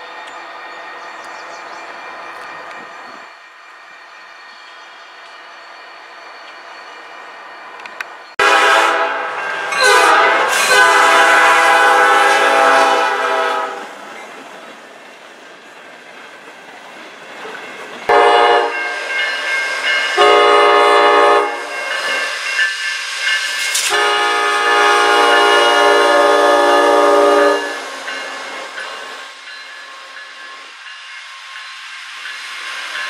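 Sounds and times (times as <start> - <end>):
passing railcars: 0.0 - 33.0
locomotive air horn blasts: 8.4 - 13.9, 18.1 - 19.0, 20.2 - 21.7, 23.8 - 27.9.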